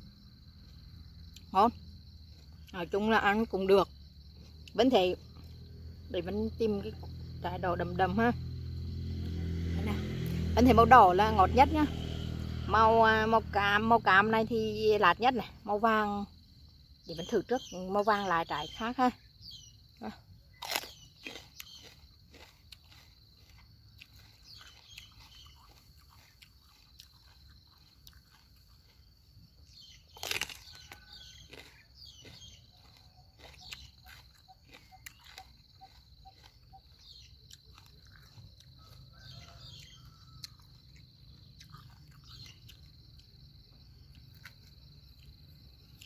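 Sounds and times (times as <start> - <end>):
high insect drone: 8.0 - 14.6
crisp biting and chewing: 20.5 - 43.4, 44.0 - 46.0.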